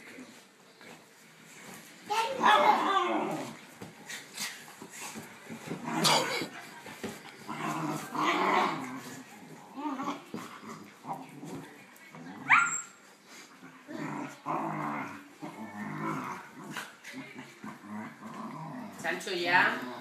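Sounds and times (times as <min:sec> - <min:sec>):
small dogs play-growling: 0:00.0 - 0:20.0
dog yelping: 0:12.4 - 0:13.0.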